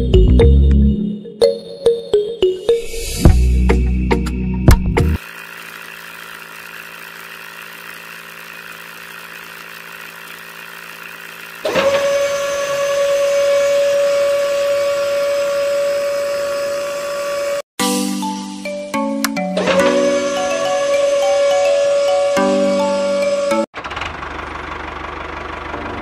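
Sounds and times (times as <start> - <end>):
high-pitched motor whine: 5.2 - 17.6
small motors humming: 5.2 - 17.7, 19.6 - 23.7.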